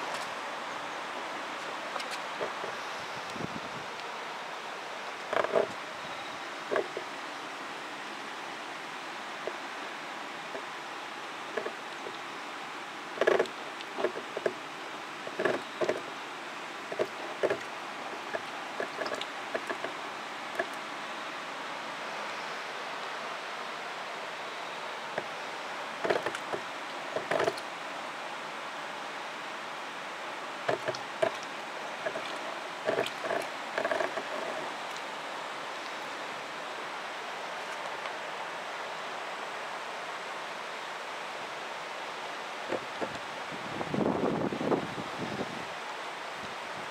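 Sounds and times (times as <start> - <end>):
water splashing and sloshing: 0.0 - 21.2, 25.0 - 28.1, 28.7 - 39.0, 41.4 - 43.8
steady hiss: 0.0 - 46.9
water gurgling through a siphon hose: 16.9 - 20.0
pump knocks: 26.0 - 26.6, 30.7 - 31.4, 32.0 - 34.6.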